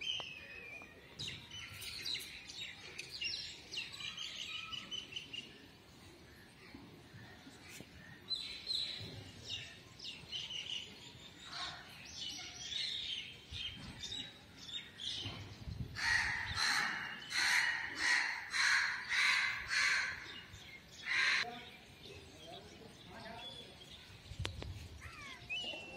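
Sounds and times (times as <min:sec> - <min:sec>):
small birds chirping: 0:00.0 - 0:25.9
crow cawing: 0:16.0 - 0:20.3.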